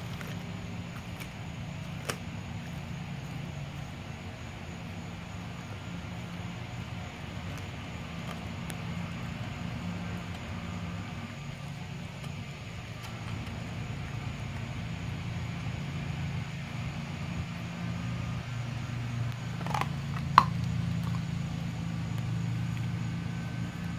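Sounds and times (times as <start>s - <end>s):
low motor hum: 0.0s - 23.9s
dog chewing clicks: 19.3s - 21.3s.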